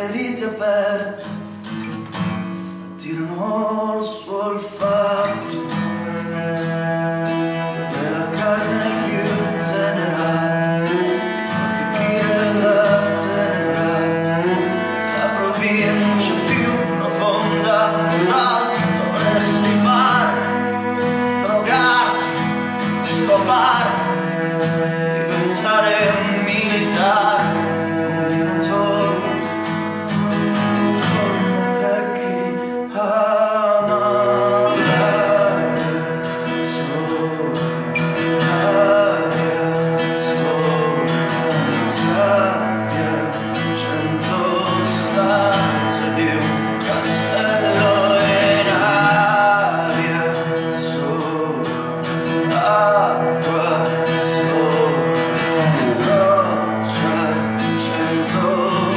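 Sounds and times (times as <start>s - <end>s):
acoustic guitar strumming: 0.0s - 58.9s
bowed cello: 0.0s - 58.9s.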